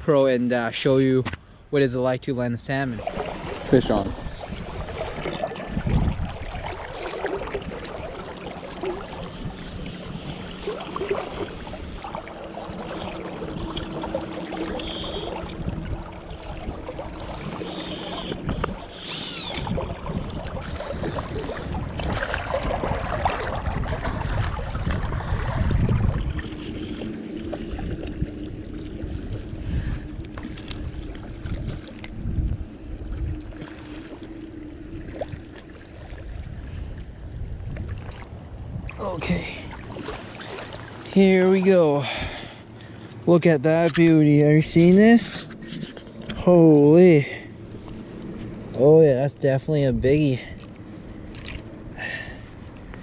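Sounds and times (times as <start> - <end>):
wind buffeting microphone: 2.8 - 8.1, 8.7 - 42.4
river current rushing: 2.8 - 23.9.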